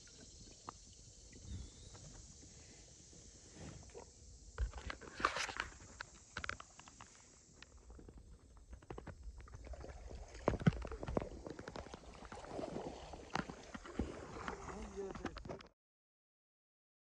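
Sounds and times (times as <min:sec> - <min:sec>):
paddle splashing water: 0:07.9 - 0:15.7.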